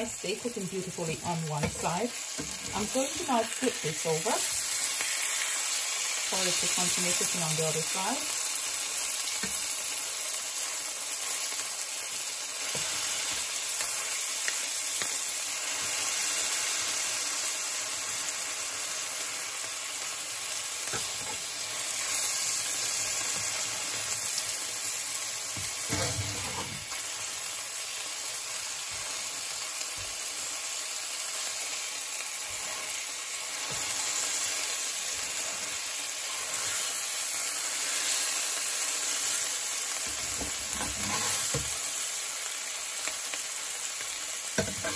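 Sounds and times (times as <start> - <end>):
steak sizzling in pan: 0.0 - 44.9
spatula scraping and knocking pan: 25.6 - 26.9, 40.0 - 41.8, 44.6 - 44.9.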